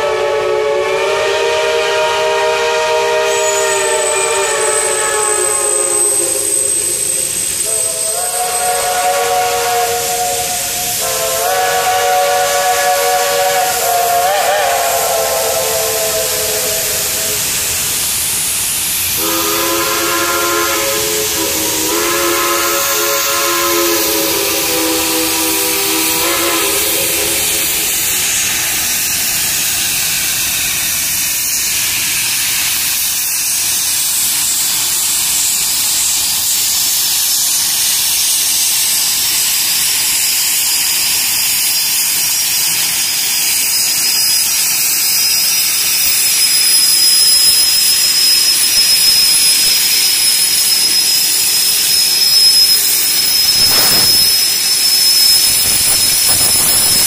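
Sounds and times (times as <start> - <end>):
steam hissing: 0.0 - 57.0
steam locomotive whistle: 0.0 - 57.0.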